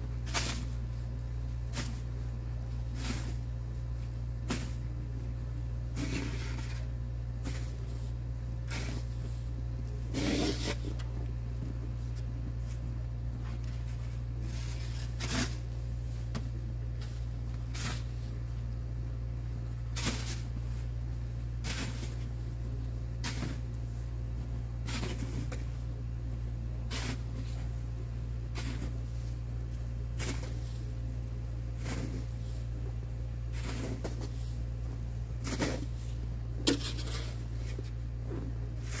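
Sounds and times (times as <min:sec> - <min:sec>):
snow shovel scraping snow: 0:00.2 - 0:00.8, 0:02.9 - 0:03.5, 0:04.4 - 0:04.9, 0:05.9 - 0:11.0, 0:13.9 - 0:15.8, 0:17.0 - 0:18.4, 0:19.9 - 0:20.9, 0:21.6 - 0:22.3, 0:23.2 - 0:24.0, 0:24.8 - 0:25.8, 0:26.9 - 0:27.7, 0:28.5 - 0:29.4, 0:30.2 - 0:31.0, 0:31.8 - 0:32.8, 0:33.5 - 0:34.7, 0:35.4 - 0:39.0.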